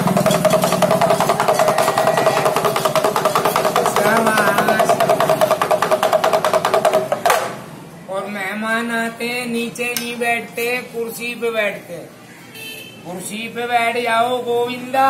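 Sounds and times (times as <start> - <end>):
small pellet drum rattling: 0.0 - 7.4.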